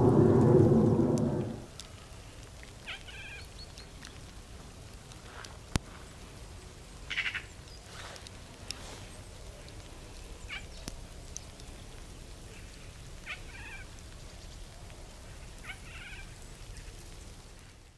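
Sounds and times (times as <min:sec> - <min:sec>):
low steady rumble: 0:00.0 - 0:01.8.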